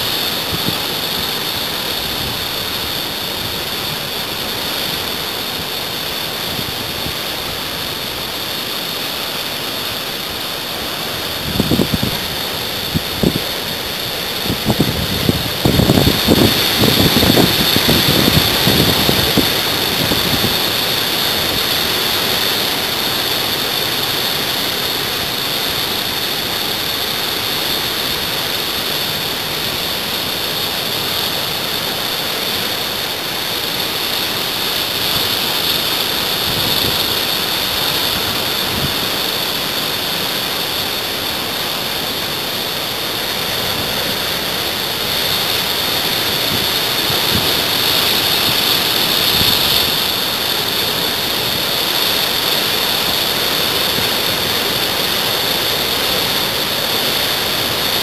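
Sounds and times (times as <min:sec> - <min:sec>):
ocean surf breaking: 0:00.0 - 0:58.0
wind buffeting microphone: 0:11.0 - 0:22.5, 0:35.0 - 0:39.3, 0:43.4 - 0:51.0.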